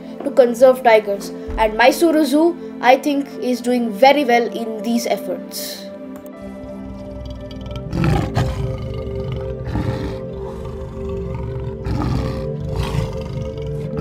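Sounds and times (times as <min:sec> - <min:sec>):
background music with held tones: 0:00.0 - 0:14.0
big cat roaring: 0:06.4 - 0:14.0.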